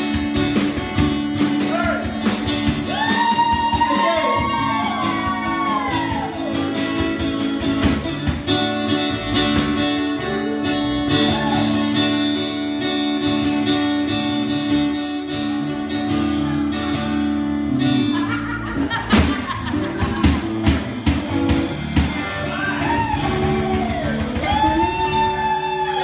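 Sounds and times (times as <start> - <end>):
acoustic guitar strumming: 0.0 - 25.6
electric guitar: 0.0 - 26.0.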